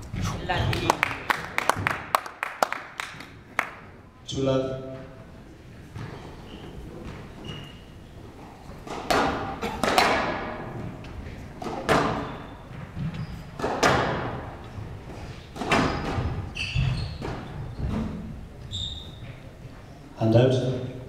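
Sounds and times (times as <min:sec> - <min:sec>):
squash ball hits: 0:08.8 - 0:11.0, 0:11.6 - 0:14.6, 0:15.5 - 0:18.2.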